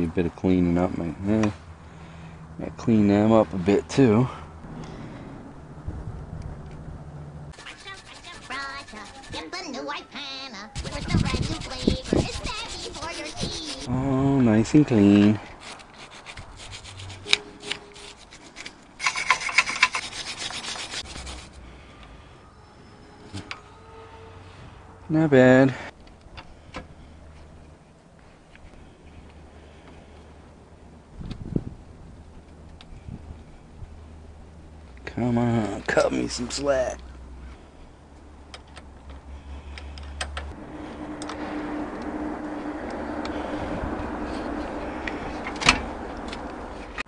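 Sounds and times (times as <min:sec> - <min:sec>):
wire brush scrubbing metal: 0:07.5 - 0:09.6, 0:10.8 - 0:13.9, 0:15.6 - 0:21.6.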